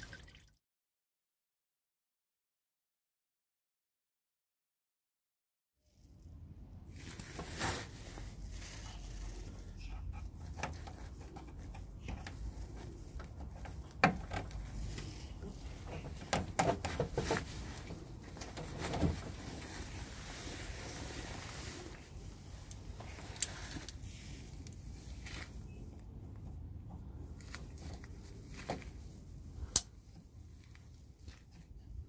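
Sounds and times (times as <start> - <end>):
rubber hose clicks and knocks: 13.2 - 15.1, 15.9 - 17.6.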